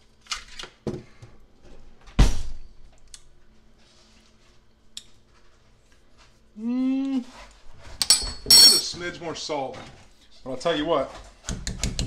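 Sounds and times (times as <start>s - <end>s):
person humming mmm: 6.6s - 7.3s.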